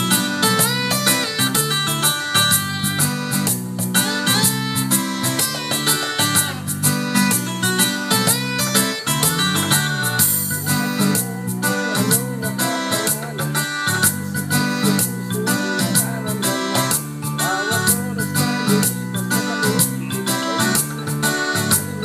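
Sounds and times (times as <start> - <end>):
keyboard-led pop music: 0.0 - 22.0.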